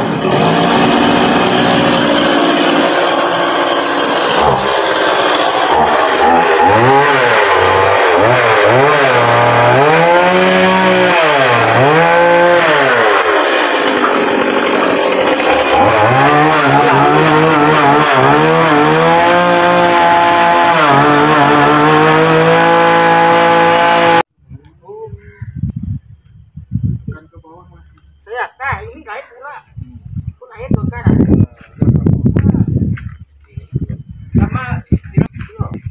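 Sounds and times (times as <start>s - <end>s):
chainsaw engine revving: 0.0s - 24.3s.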